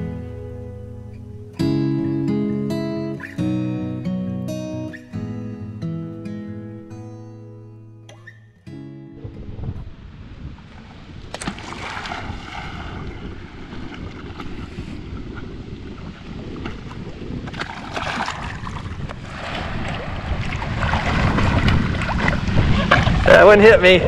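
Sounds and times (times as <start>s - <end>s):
wind rumbling on microphone: 9.1s - 24.0s
water splashing and sloshing: 9.7s - 24.0s
dog paddling in water: 10.7s - 23.3s.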